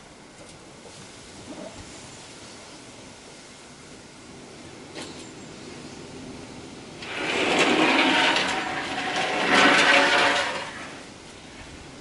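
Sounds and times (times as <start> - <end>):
board scraping on wet concrete: 7.0 - 11.1.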